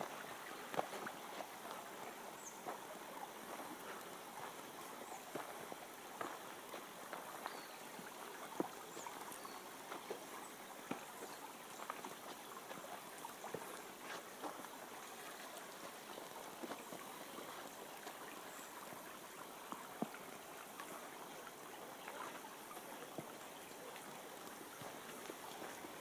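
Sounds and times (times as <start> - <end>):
stream trickling over stones: 0.0 - 26.0
footsteps on dirt path: 2.6 - 7.8.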